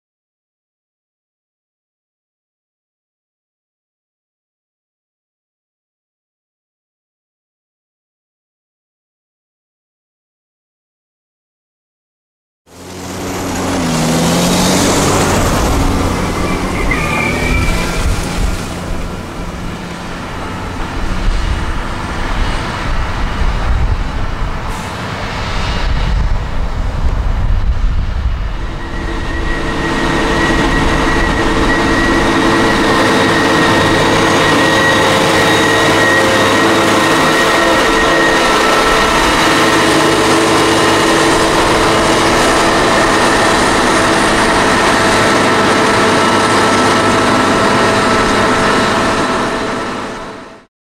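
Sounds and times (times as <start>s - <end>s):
farm machinery engine drone: 12.7s - 50.7s.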